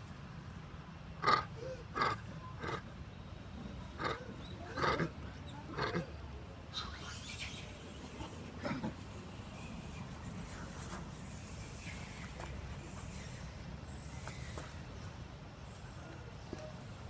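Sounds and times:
macaque call: 1.2 - 2.8, 4.0 - 6.1.

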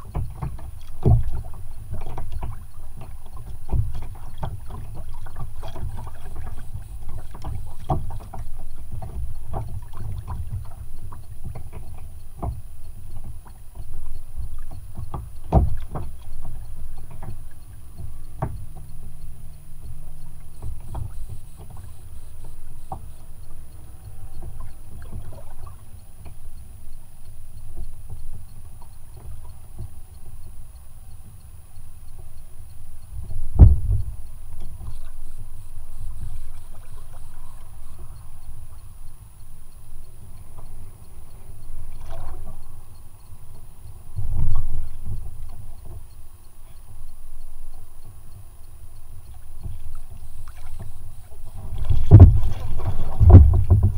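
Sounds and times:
low rumble of wind: 0.0 - 53.9
water lapping against kayak hull: 0.0 - 53.9
sharp knocks: 33.6 - 34.1, 51.8 - 53.9.

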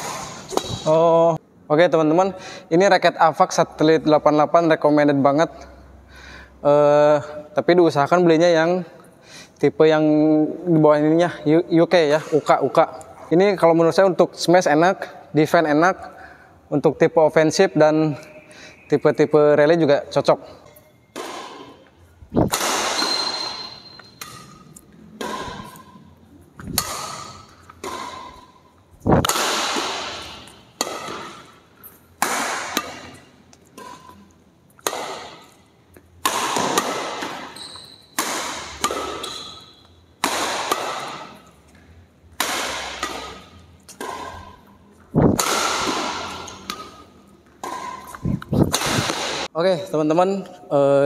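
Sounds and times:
shuttlecock hit by racket: 0.0 - 1.0, 21.1 - 26.0, 26.6 - 35.6, 36.2 - 41.5, 42.3 - 49.5
short high squeaks: 22.9 - 24.6, 37.4 - 38.2.

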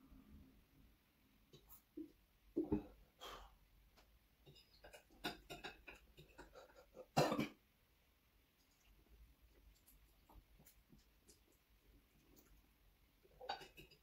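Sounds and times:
loud cough: 7.2 - 7.6.

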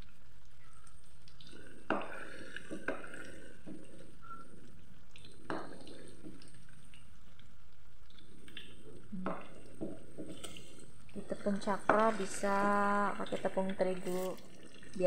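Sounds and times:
food sizzling in hot oil: 10.0 - 15.0.

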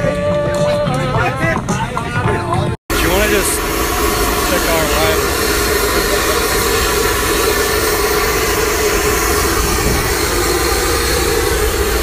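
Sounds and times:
jet engines running: 2.9 - 12.0.

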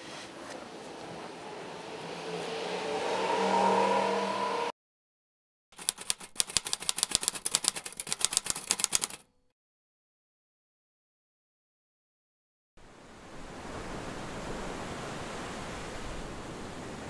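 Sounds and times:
typewriter key clicks: 5.8 - 9.3.

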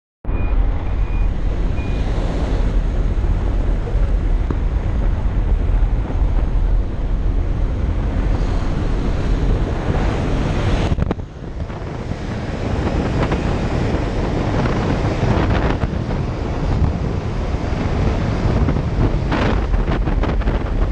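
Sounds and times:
short high beeps: 0.3 - 2.2
aircraft engine running: 0.3 - 20.9
wind rushing through open door: 0.3 - 20.9.

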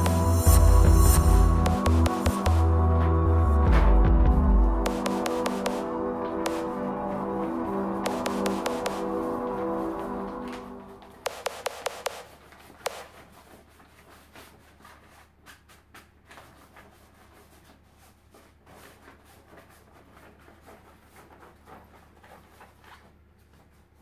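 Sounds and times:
light scuffs and taps: 12.0 - 24.0
fabric cover rustling against frame: 12.2 - 24.0.

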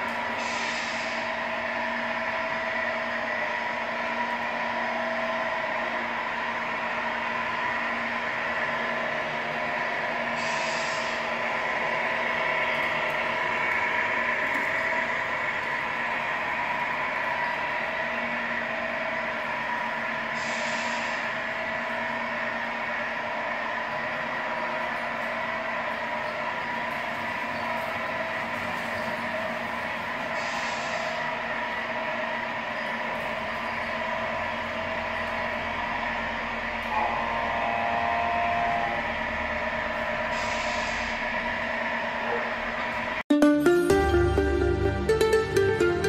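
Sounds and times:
simulated diesel engine: 0.0 - 43.2
air-brake hiss: 0.2 - 1.5, 10.2 - 12.0, 20.2 - 21.8, 30.2 - 31.7, 40.1 - 41.4.

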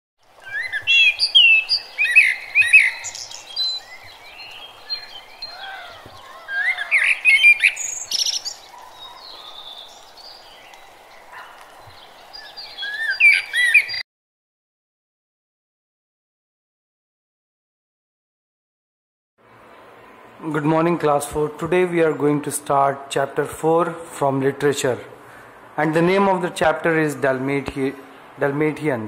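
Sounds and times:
steady background hiss: 0.2 - 13.9
birds chirping and singing: 0.4 - 14.0.

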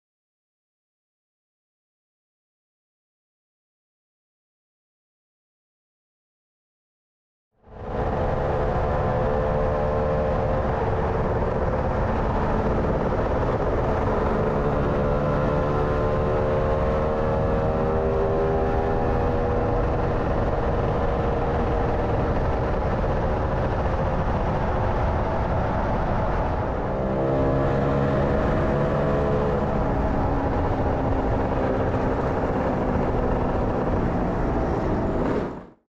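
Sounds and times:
wind buffeting microphone: 7.7 - 35.8
scooter engine running: 18.9 - 35.3.

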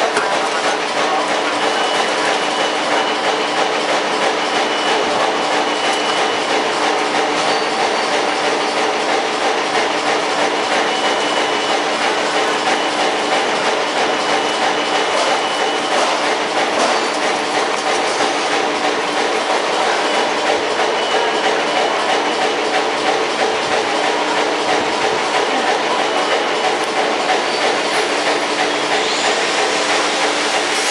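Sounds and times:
machinery hum: 0.0 - 30.9.

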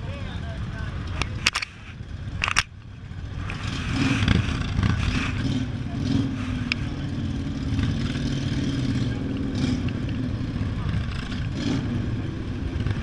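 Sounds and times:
motorcycle engines running: 0.0 - 13.0.

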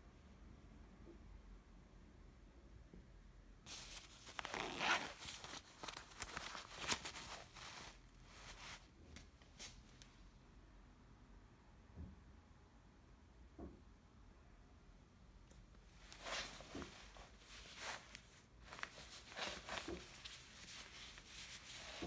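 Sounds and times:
nylon jacket rustling: 3.7 - 8.8, 16.0 - 22.0.

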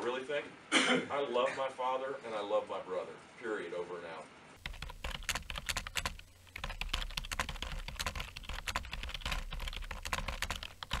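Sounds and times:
keyboard typing: 4.6 - 11.0.

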